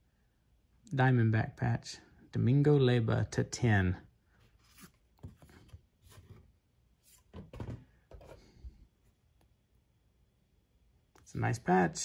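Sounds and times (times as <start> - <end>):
paper rustling: 4.4 - 8.5.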